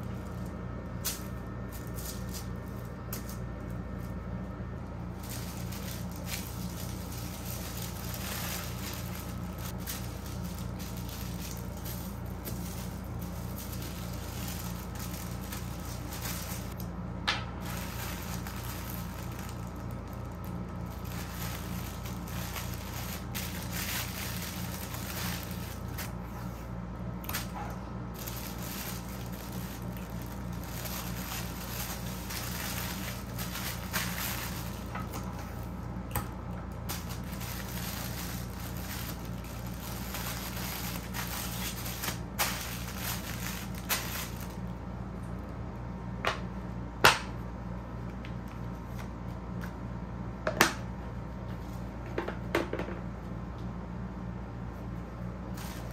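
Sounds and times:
low hum: 0:00.0 - 0:46.8
tissue paper rustling: 0:05.1 - 0:16.8, 0:17.6 - 0:35.8, 0:36.8 - 0:44.7, 0:55.5 - 0:55.9.

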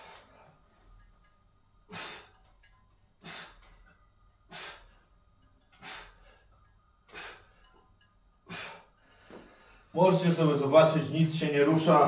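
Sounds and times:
man breathing out hard: 0:08.5 - 0:09.9.

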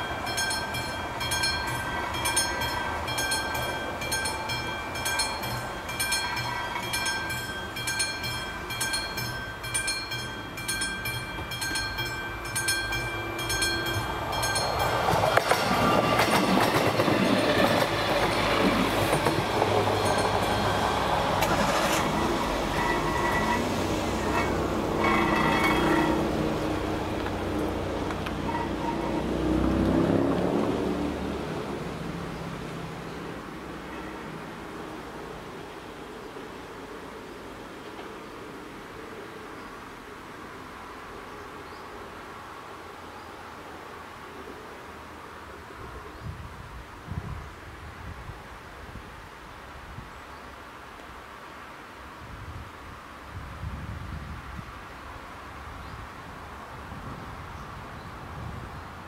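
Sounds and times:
level crossing bell ringing: 0:00.0 - 0:15.2, 0:19.9 - 0:21.1, 0:21.7 - 0:23.7
train wheels clacking on rails: 0:00.0 - 0:30.6
car driving across tracks: 0:00.0 - 0:36.5.

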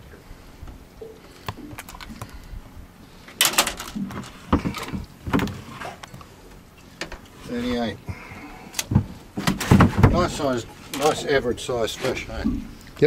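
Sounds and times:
clicks and knocks handling fish: 0:00.6 - 0:13.0
clattering in boat: 0:03.2 - 0:13.0.

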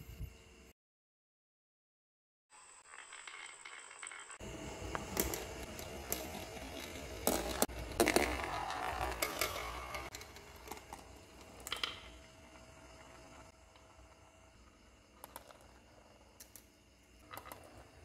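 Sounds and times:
marbles rolling rumble: 0:02.6 - 0:18.0
marbles clicking and clacking: 0:02.8 - 0:12.3, 0:15.1 - 0:18.0.

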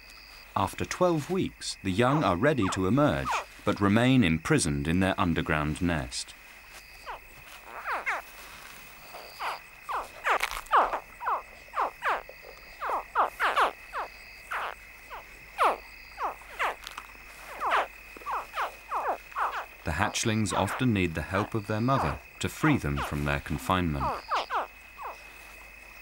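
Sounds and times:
crocodile hatchlings chirping: 0:09.2 - 0:16.8, 0:17.5 - 0:25.2.

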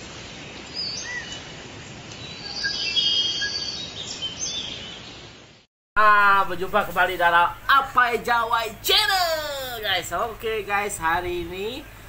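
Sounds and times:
steady background hiss: 0:00.0 - 0:12.0
birds chirping: 0:00.1 - 0:05.7.

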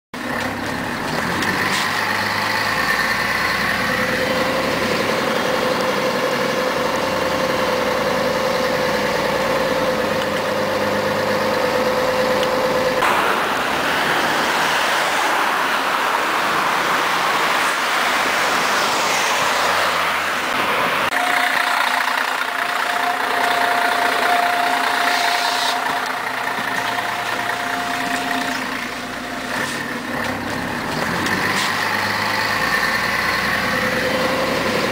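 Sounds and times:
road noise: 0:00.1 - 0:34.9
bus engine running: 0:00.2 - 0:34.9
rushing noise: 0:12.0 - 0:34.2
whine rising in pitch: 0:21.2 - 0:30.9.

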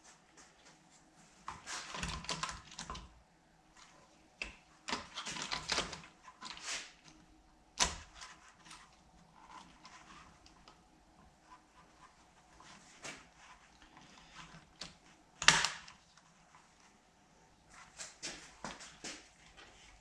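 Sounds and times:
sharp plastic snap: 0:15.4 - 0:15.9.

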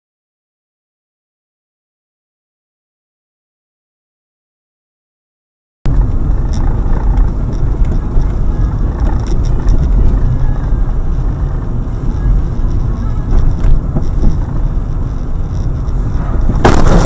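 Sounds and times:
light clicks and rattles: 0:05.9 - 0:11.3
car engine and tyre rumble: 0:05.9 - 0:17.0.

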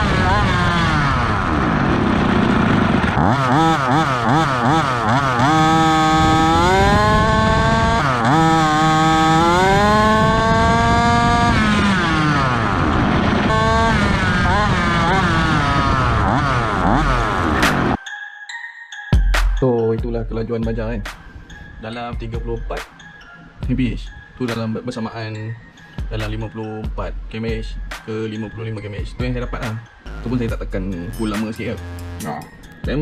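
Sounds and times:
small two-stroke engine revving: 0:00.0 - 0:18.0.

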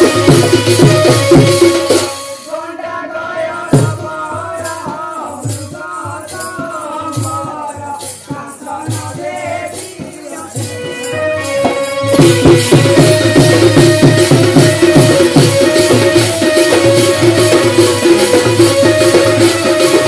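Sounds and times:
barrel drum beating: 0:00.0 - 0:02.2, 0:08.3 - 0:20.0
jingling rattle percussion: 0:03.6 - 0:20.0.

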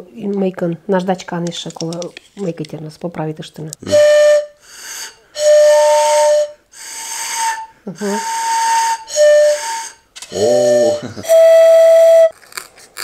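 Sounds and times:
breathy flute toots: 0:03.8 - 0:12.7
short voice sound: 0:10.3 - 0:11.3.

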